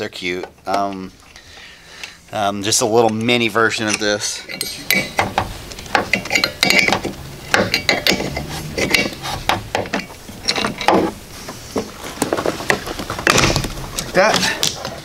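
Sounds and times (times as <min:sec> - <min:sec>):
metallic clicking and clinking: 0:03.0 - 0:11.2.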